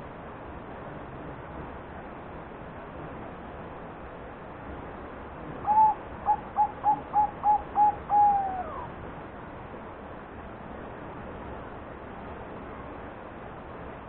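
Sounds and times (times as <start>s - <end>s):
dove cooing: 5.6s - 8.9s.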